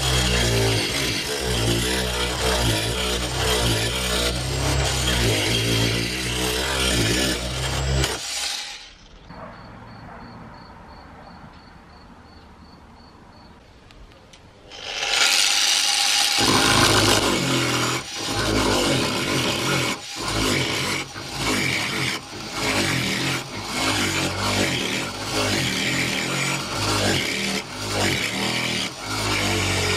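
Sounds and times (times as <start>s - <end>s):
power chisel chopping wood: 14.9s - 29.9s.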